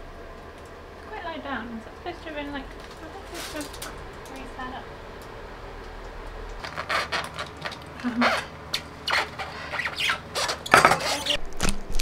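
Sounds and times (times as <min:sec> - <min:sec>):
bike parts clattering and scraping: 0:02.8 - 0:04.0, 0:09.1 - 0:11.4.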